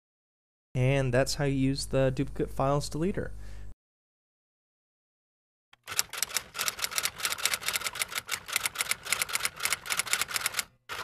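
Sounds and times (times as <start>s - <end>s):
typewriter-like keystroke clicks: 5.8s - 11.0s.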